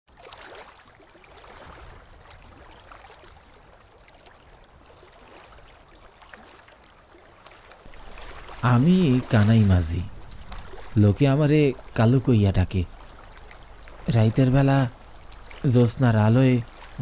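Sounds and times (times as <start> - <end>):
oars splashing: 0.1 - 17.0
river water lapping: 0.1 - 17.0.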